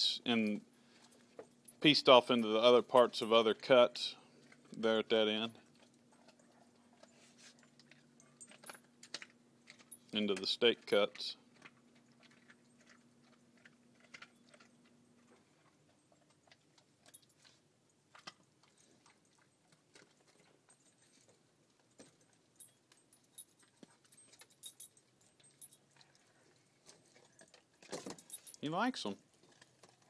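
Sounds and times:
dog chewing meat and bone: 4.3 - 10.1, 11.4 - 28.3, 29.2 - 30.0.

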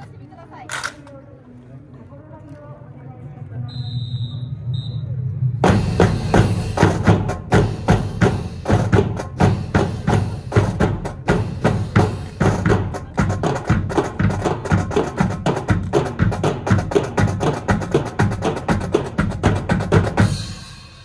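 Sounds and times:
bass drum beats: 5.6 - 20.6
snare drums marching cadence: 5.7 - 20.6.

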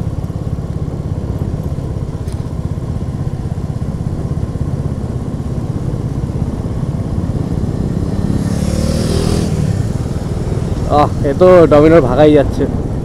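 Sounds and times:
motorcycle engine idling: 0.0 - 8.2.

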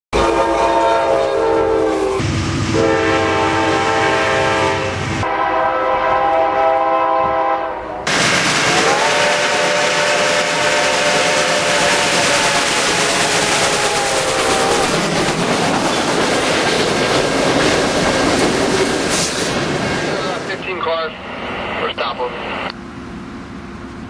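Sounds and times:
diesel locomotive air horns: 0.1 - 15.1
steam locomotive whistle: 0.2 - 15.2.

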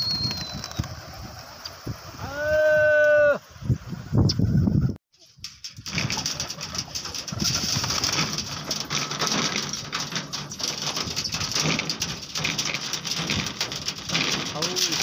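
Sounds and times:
pigeons pecking on drum top: 5.4 - 15.0.

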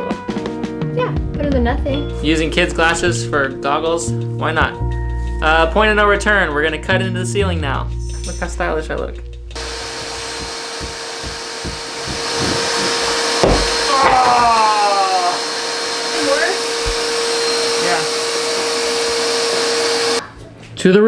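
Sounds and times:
hand saw rasping: 9.6 - 14.3
vacuum cleaner whining: 9.6 - 20.2.

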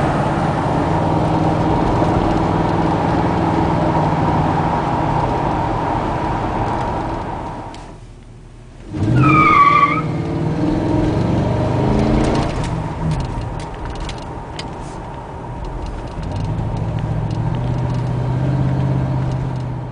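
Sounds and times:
car engine revving: 0.0 - 7.9, 8.8 - 19.9
tire squeal: 8.9 - 10.4.

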